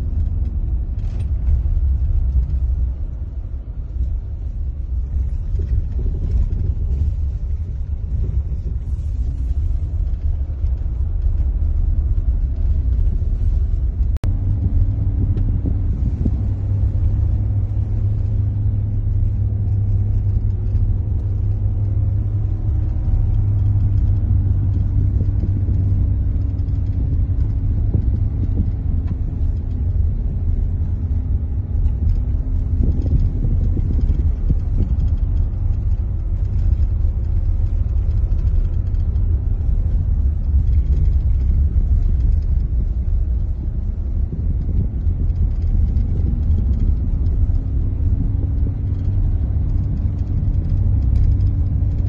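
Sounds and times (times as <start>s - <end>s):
car engine and tyres on gravel: 0.0s - 52.0s.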